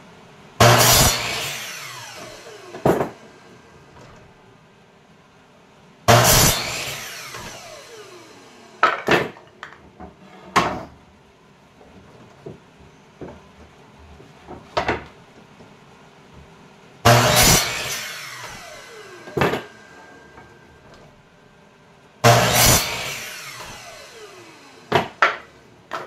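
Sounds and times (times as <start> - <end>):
saw blade spinning down: 0.6 - 4.1, 6.1 - 9.0, 17.1 - 21.0, 22.2 - 25.6
miter saw cutting wood: 0.6 - 4.2, 6.1 - 9.4, 17.0 - 21.1, 22.2 - 26.0
wooden boards knocking: 24.9 - 26.0.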